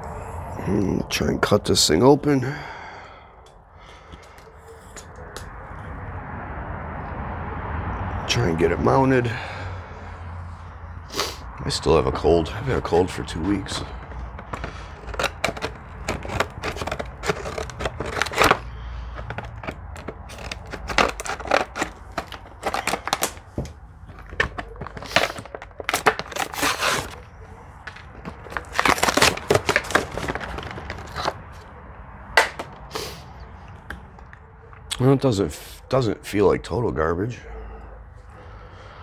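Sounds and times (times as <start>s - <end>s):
plastic packaging crackling and tearing: 12.7s - 31.7s.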